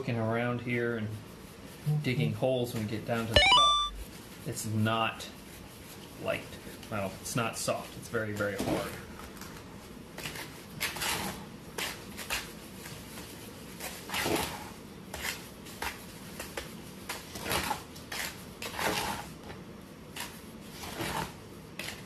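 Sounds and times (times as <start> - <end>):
spoon scraping plaster in a bowl: 17.1 - 19.4, 20.1 - 22.0.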